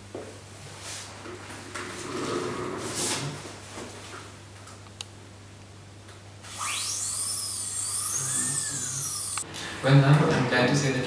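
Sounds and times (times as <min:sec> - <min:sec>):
dental drill whining: 0:06.4 - 0:09.4.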